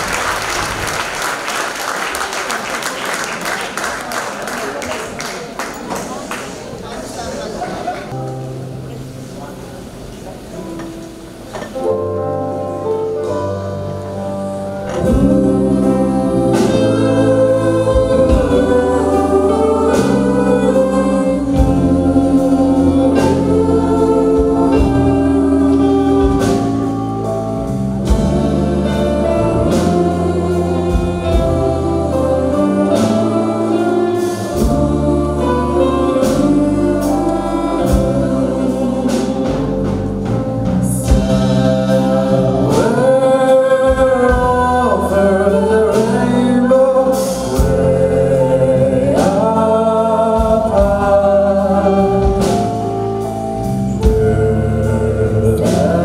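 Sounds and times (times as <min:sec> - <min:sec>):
choir singing with band: 0:12.8 - 0:56.0.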